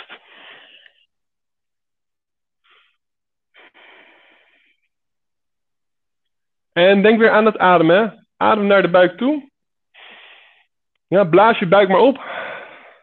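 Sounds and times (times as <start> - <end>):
man breathing: 0.1 - 1.1, 3.6 - 5.0, 10.0 - 10.8, 12.2 - 13.0.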